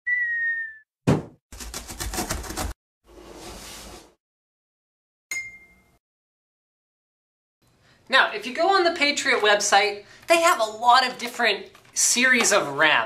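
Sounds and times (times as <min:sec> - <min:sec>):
heavy thud: 0:01.1 - 0:01.4.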